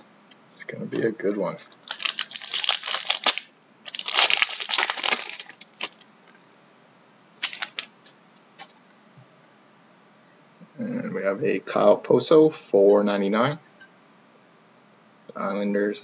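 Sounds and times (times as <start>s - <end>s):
plastic wrapping crinkling: 1.6s - 6.0s, 7.4s - 7.9s.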